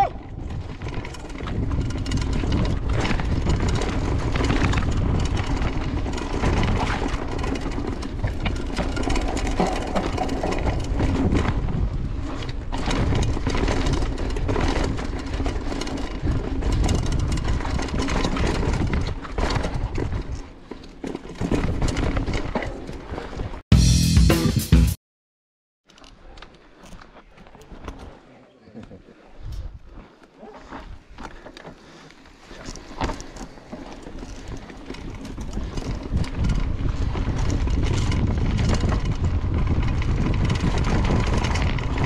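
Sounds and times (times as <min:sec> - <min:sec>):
wind buffeting microphone: 0:00.0 - 0:20.4, 0:34.2 - 0:42.0
bike rattling over bumps: 0:00.0 - 0:23.6, 0:29.6 - 0:42.0
tyres crunching over dirt: 0:29.6 - 0:42.0.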